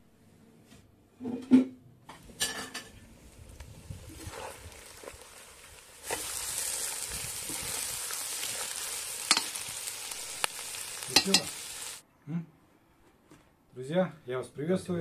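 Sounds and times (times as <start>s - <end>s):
food sizzling in hot oil: 3.4s - 12.0s
metal spatula clicking on pot: 9.3s - 9.5s, 11.2s - 11.5s.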